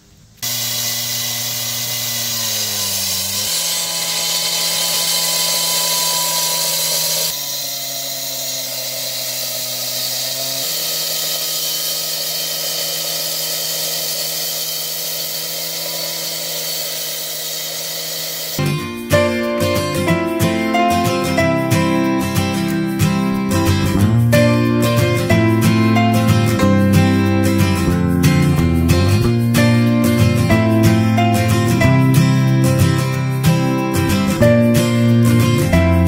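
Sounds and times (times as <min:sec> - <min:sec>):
cut-off saw cutting: 0:00.4 - 0:18.8.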